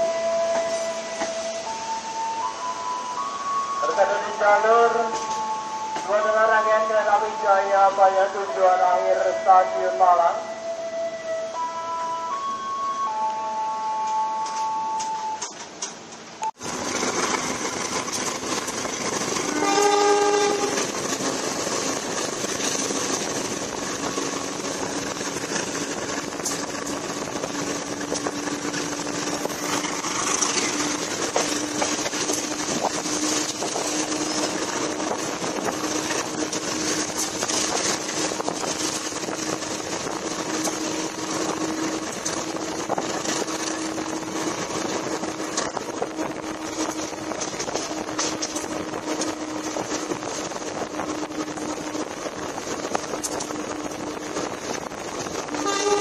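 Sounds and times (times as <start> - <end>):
train wheels on rails: 0.0 - 9.2, 12.3 - 56.0
locomotive horn: 19.4 - 20.9, 55.5 - 56.0.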